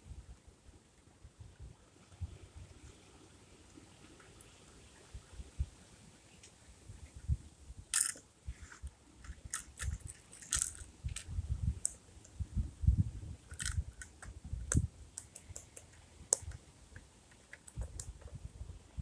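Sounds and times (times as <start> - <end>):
sharp clicks of small plastic parts: 7.9 - 8.2, 9.2 - 12.4, 13.5 - 18.4.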